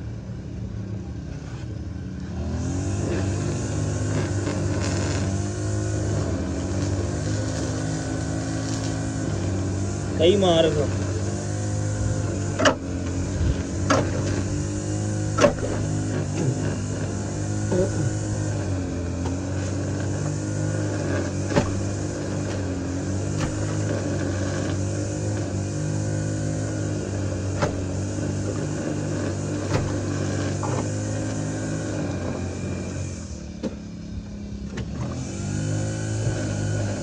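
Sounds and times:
engine running: 0.0s - 37.0s
sharp clicks and knocks: 15.3s - 16.4s.

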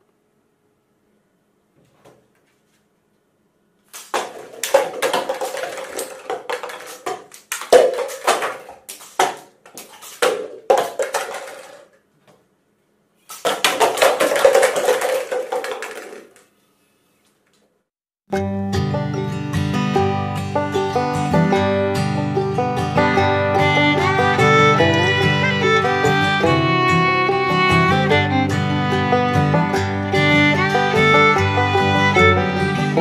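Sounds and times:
toy gun shots hitting cups: 4.0s - 11.8s, 13.3s - 16.4s
plastic cups clattering on wood: 4.0s - 12.0s, 13.3s - 16.5s.

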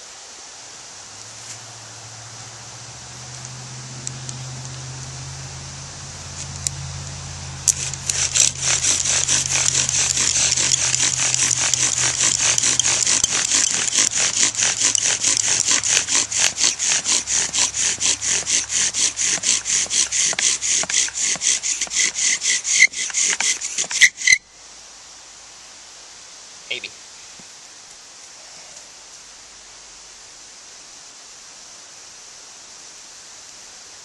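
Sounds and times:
bow drill spindle rasping: 7.6s - 24.4s
sharp squeaks: 7.7s - 24.4s.

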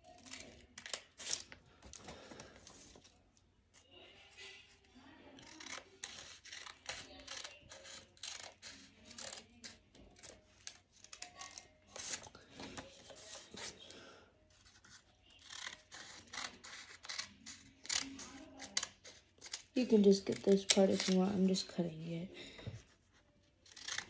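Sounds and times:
scissors snipping paper: 0.0s - 1.6s, 5.4s - 13.8s, 14.6s - 21.6s, 23.6s - 24.0s.

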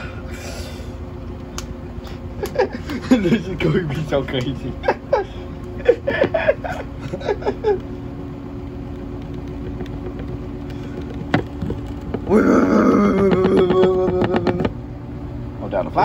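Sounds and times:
washing machine spinning: 0.0s - 16.0s
washing machine rattling: 9.1s - 14.8s.

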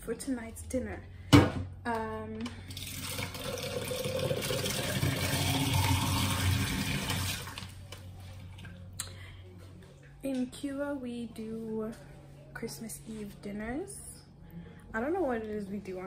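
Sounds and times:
water running from tap: 2.7s - 7.7s.

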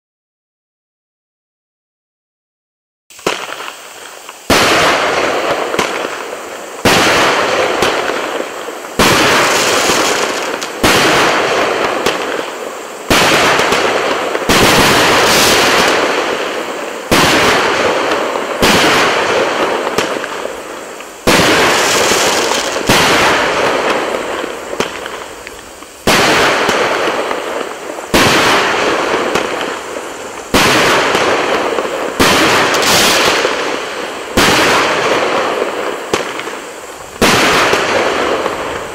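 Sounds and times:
crackling of bursting stars: 3.1s - 38.9s
firework shell bangs: 21.2s - 36.5s.

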